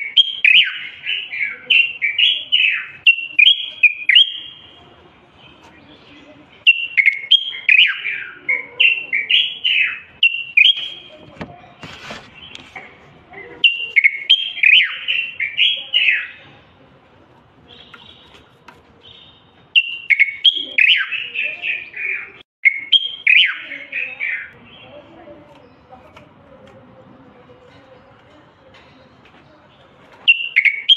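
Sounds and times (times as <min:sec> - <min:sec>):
bird singing whistled phrases: 0:00.0 - 0:04.8, 0:06.6 - 0:11.1, 0:13.6 - 0:16.4, 0:19.0 - 0:24.9, 0:30.3 - 0:30.9.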